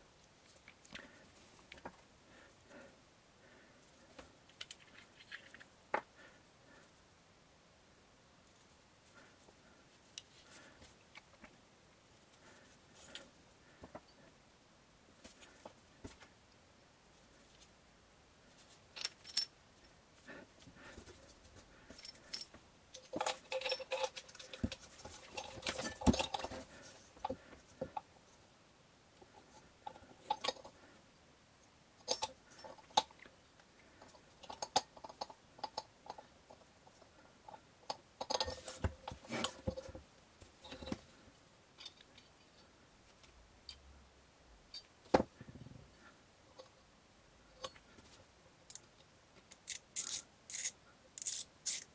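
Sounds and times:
small metal parts clinking: 18.9s - 19.6s, 21.9s - 26.6s, 32.0s - 33.1s.

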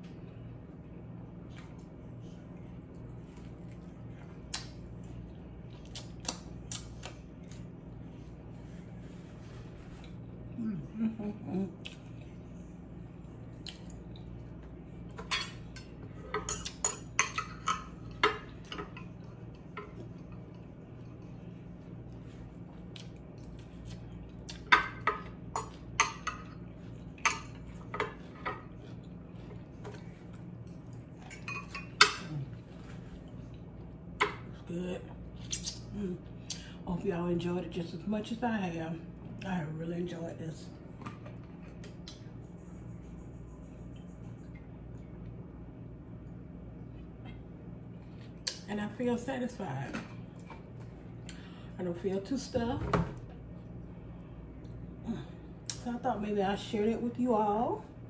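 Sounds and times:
steady low hum: 0.0s - 58.0s
chewing with crunches: 1.4s - 10.6s, 18.1s - 24.7s, 25.7s - 34.2s.

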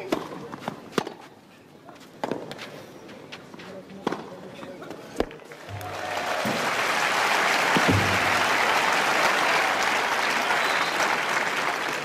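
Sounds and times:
stadium crowd applauding: 5.4s - 12.0s.

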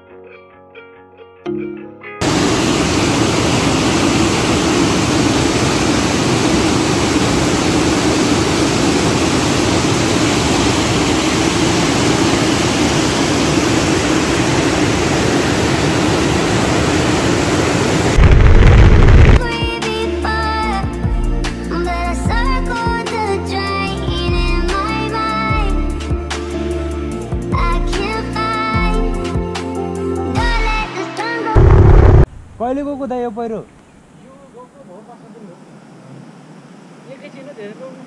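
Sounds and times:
low rumble: 18.1s - 19.4s, 31.6s - 32.7s.

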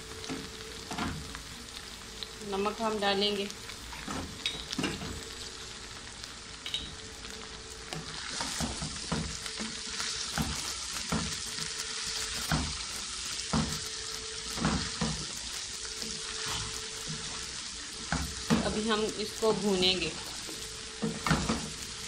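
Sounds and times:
okra sizzling in oil: 0.0s - 22.0s
spatula scraping a pan: 8.1s - 18.6s.

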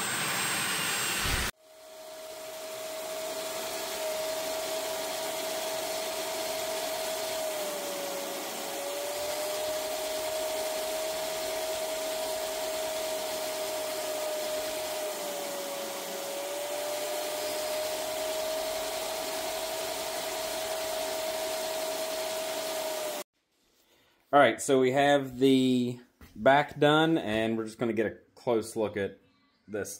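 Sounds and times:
shop vacuum whining: 0.0s - 23.3s.

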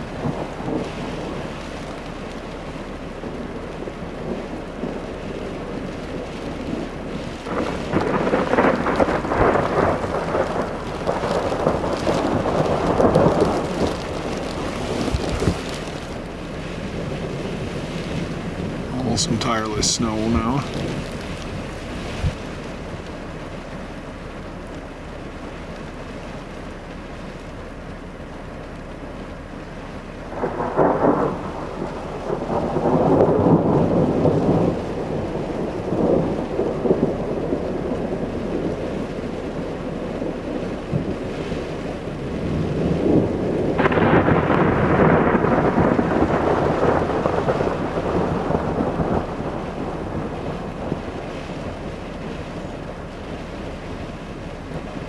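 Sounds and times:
thunder rumbling: 0.0s - 55.0s
sharp thunder crack: 6.8s - 16.3s, 17.0s - 22.4s, 30.3s - 38.7s, 42.5s - 51.2s.

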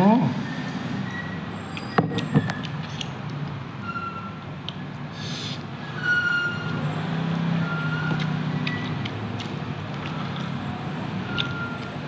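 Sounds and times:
person chewing and smacking: 1.7s - 3.5s, 4.6s - 4.8s, 8.1s - 10.6s, 11.2s - 12.0s.

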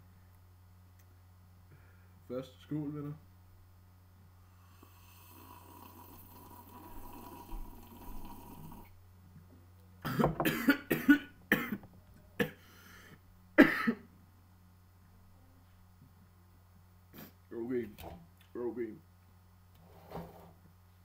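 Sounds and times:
man coughing hard: 10.0s - 11.8s, 12.4s - 12.6s, 13.6s - 14.1s.

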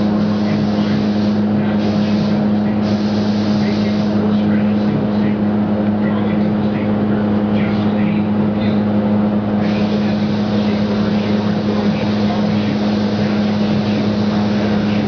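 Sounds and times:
spray gun hissing: 0.0s - 4.8s, 9.6s - 15.0s
low hum of fans: 0.0s - 15.0s.

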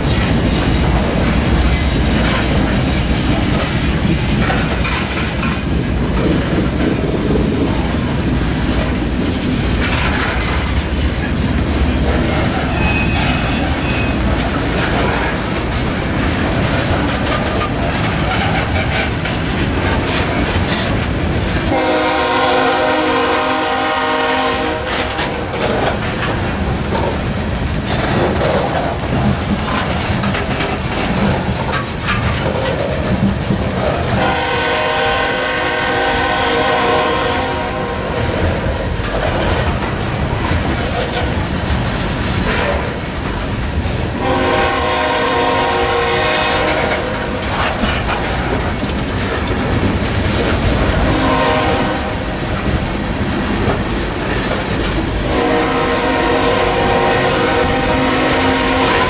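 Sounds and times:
train wheels clickety-clack: 0.0s - 59.0s
train horn blasts: 21.7s - 25.1s, 34.1s - 38.4s, 44.2s - 47.3s, 50.9s - 52.3s, 55.2s - 59.0s.

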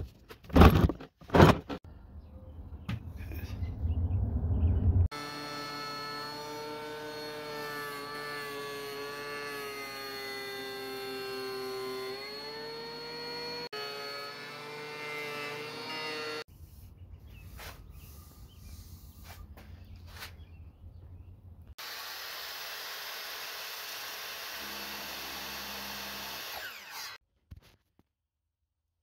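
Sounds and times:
low rumble: 2.0s - 5.1s
thickness planer whining: 5.1s - 16.5s, 21.8s - 27.2s.

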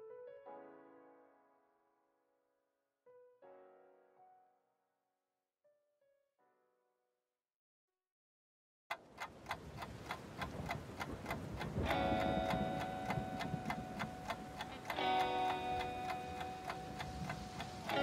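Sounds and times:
ticking beat: 8.9s - 18.0s
sustained held notes: 11.8s - 18.0s.

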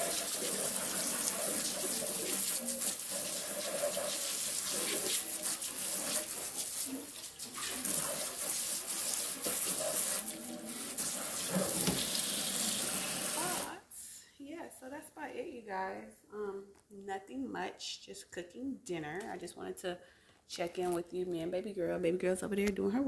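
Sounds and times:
dishes being washed: 0.0s - 13.7s
tap water running into sink: 0.0s - 13.7s.

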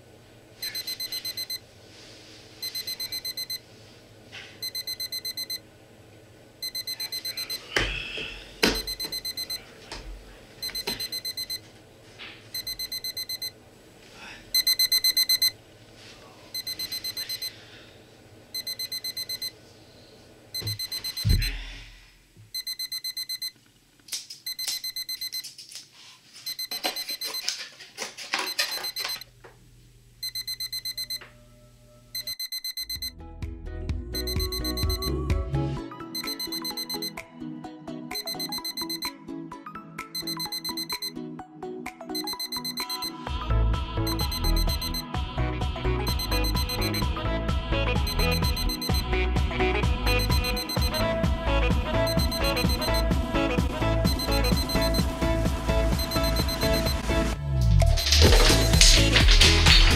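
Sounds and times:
alarm clock beeping: 0.6s - 1.6s, 2.6s - 3.6s, 4.6s - 5.6s, 6.6s - 7.7s, 8.6s - 9.6s, 10.6s - 11.6s, 12.6s - 13.5s, 14.5s - 15.6s, 16.6s - 17.6s, 18.6s - 19.5s, 20.6s - 21.6s, 22.6s - 23.5s, 24.5s - 25.4s, 26.4s - 27.5s, 28.5s - 29.2s, 30.2s - 31.3s, 32.1s - 33.1s, 34.2s - 35.2s, 36.2s - 37.2s, 38.1s - 39.2s, 40.2s - 41.2s, 42.2s - 43.2s, 44.1s - 45.1s, 46.1s - 47.1s, 48.0s - 49.1s, 50.1s - 51.1s, 52.0s - 53.1s, 54.0s - 55.2s, 56.0s - 57.0s, 57.8s - 59.0s.

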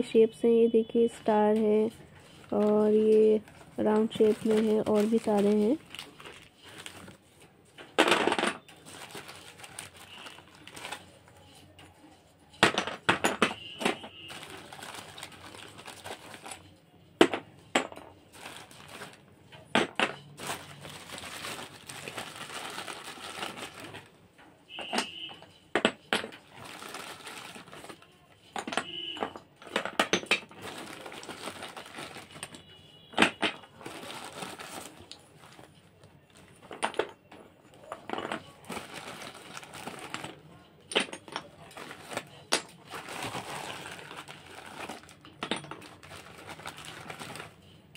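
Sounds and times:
plastic bag crinkling: 1.4s - 7.4s, 8.6s - 11.7s, 13.6s - 16.7s, 18.3s - 19.3s, 20.2s - 24.2s, 26.4s - 28.1s, 30.3s - 32.7s, 33.6s - 36.7s, 37.8s - 40.4s, 41.4s - 47.8s.

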